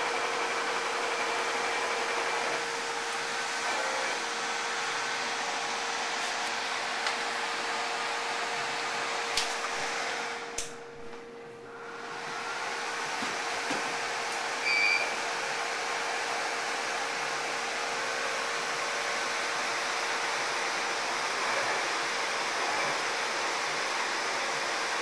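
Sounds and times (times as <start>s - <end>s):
fans rushing hiss: 0.0s - 10.7s
short high beep: 14.6s - 15.1s.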